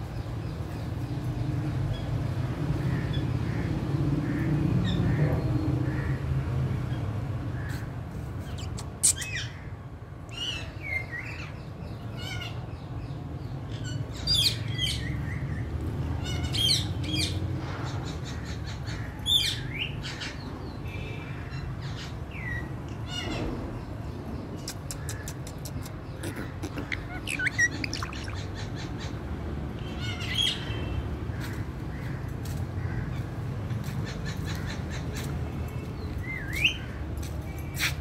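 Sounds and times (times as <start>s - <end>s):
parakeet chirping and squawking: 24.8s - 29.2s.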